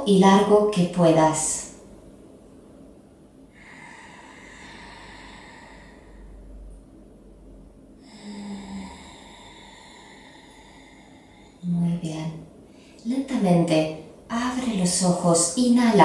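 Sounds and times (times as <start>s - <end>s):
slow breathing through nose: 3.5s - 6.6s, 8.0s - 11.7s.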